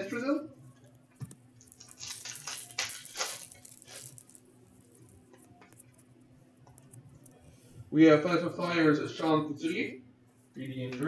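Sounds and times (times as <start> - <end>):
faint handling noise: 0.6 - 7.9
foil wrappers crinkling: 1.6 - 6.0.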